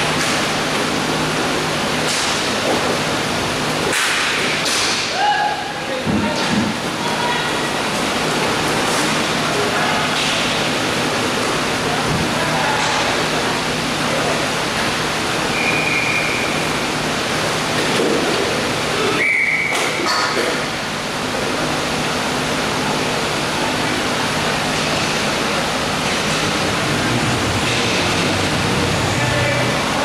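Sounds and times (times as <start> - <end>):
loud rushing rink noise: 0.0 - 30.0
short high whistle tones: 15.5 - 16.6, 19.2 - 20.0.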